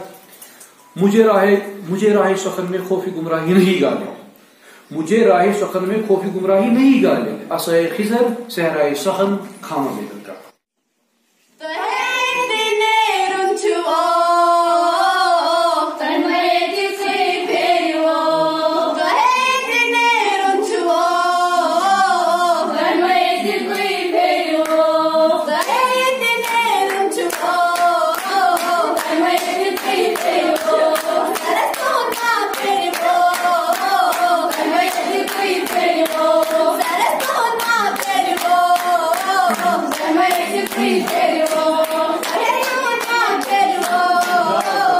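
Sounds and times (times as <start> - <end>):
girls singing into a microphone: 11.6 - 44.9
rhythmic hand-clapping: 23.0 - 44.9.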